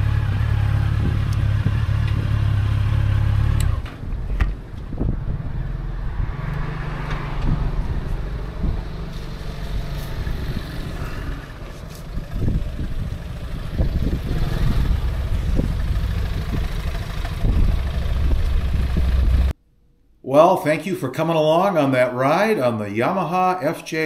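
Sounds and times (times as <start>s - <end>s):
motorcycle engine running: 0.0s - 5.8s, 7.4s - 19.5s
wind on microphone: 4.0s - 19.5s.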